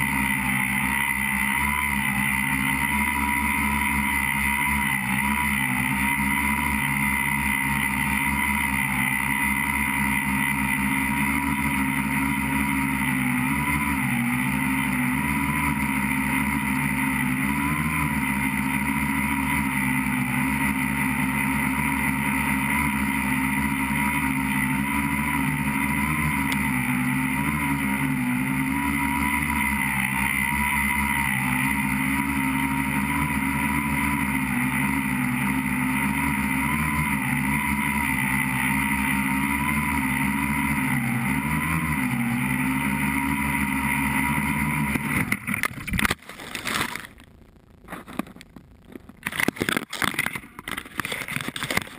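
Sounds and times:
drone motors whining: 0:00.0 - 0:47.2.

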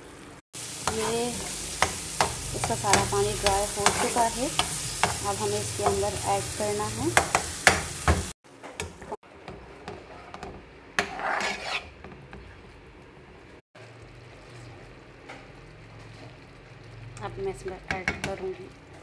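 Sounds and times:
sauce sizzling: 0:00.5 - 0:08.4, 0:11.4 - 0:19.0
spoon scraping a frying pan: 0:00.6 - 0:08.3, 0:08.9 - 0:12.7
spoon knocking on pan: 0:00.9 - 0:06.2, 0:07.1 - 0:11.2, 0:17.7 - 0:18.4.

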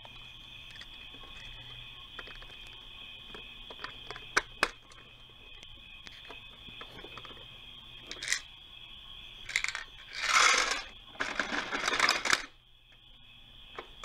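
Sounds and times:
plastic toy clicking: 0:08.1 - 0:08.4, 0:09.5 - 0:12.5
toy metal pieces rattling out: 0:08.1 - 0:08.4, 0:09.4 - 0:12.5.

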